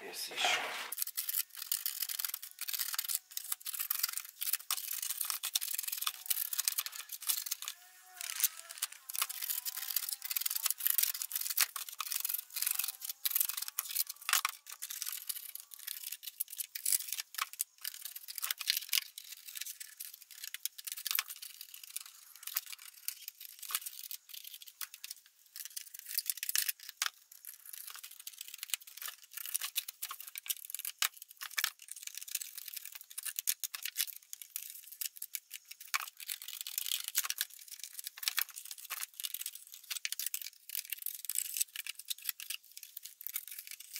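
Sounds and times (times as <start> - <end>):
knife blade scraping plastic: 0.2 - 1.3.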